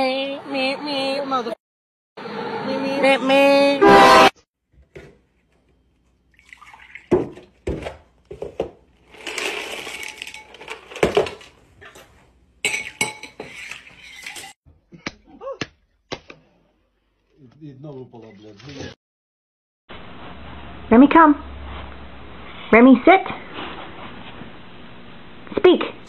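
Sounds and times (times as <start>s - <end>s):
ceramic bowl and glass jar clinking: 12.6s - 13.6s.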